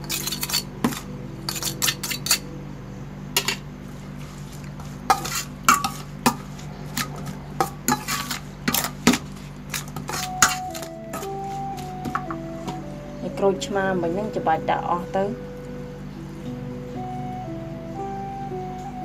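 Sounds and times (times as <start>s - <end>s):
spoon clinking in metal bowl: 0.0s - 2.4s, 7.0s - 11.3s.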